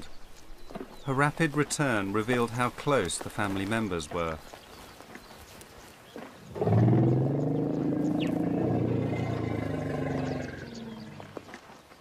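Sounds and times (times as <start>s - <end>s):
elephant long low call: 6.5s - 11.4s.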